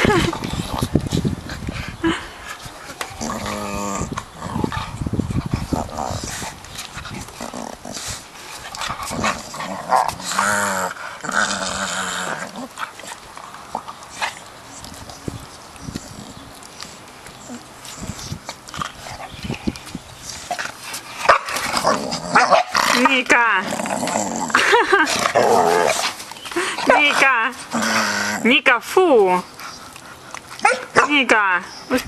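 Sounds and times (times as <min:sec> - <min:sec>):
dogs growling: 0:02.8 - 0:15.2, 0:15.8 - 0:19.8, 0:20.4 - 0:28.6.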